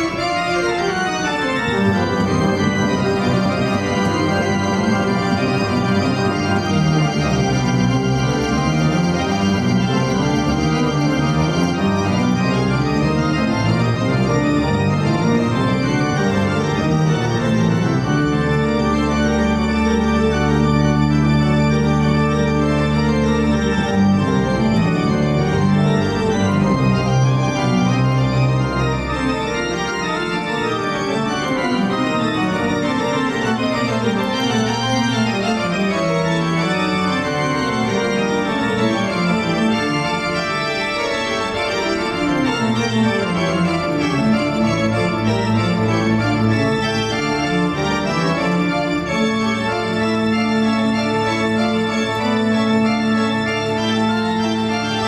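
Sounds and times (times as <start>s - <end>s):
slow organ chords: 0.0s - 55.0s.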